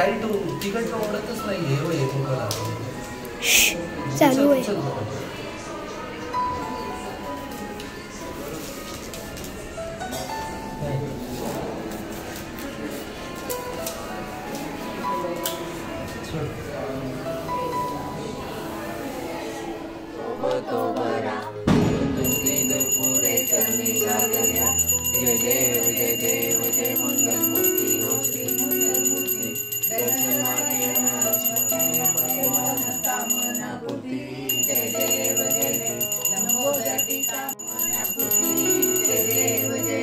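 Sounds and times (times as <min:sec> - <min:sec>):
devotional song with singing: 0:20.1 - 0:40.0
brass hand bell ringing: 0:22.1 - 0:33.6, 0:34.5 - 0:40.0.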